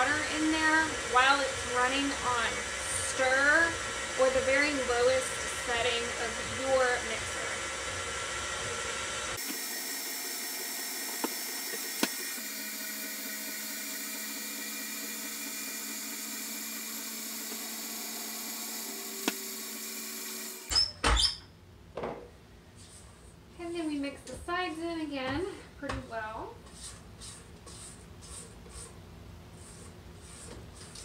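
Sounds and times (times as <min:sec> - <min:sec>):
electric stand mixer running: 0:00.0 - 0:20.7.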